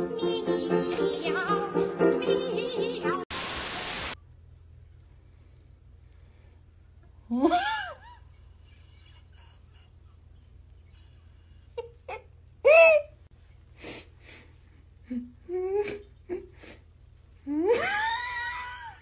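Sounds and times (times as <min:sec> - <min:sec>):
person laughing and squealing: 0:07.3 - 0:13.2, 0:17.5 - 0:19.0.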